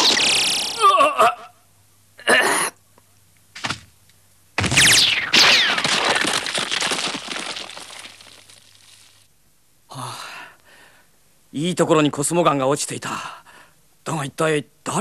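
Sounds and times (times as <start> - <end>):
ice shattering crash: 4.6 - 9.2
ice cracking: 5.4 - 9.2.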